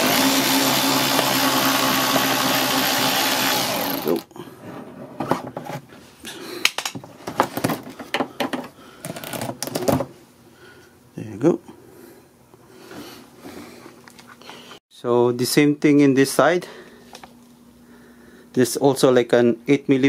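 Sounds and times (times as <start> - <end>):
cordless drill running: 0.0 - 4.3.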